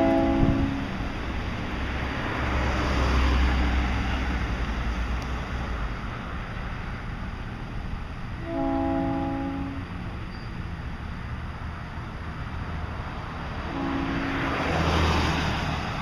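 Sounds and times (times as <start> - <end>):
car driving past: 0.0 - 5.9, 12.7 - 16.0
street noise: 0.0 - 16.0.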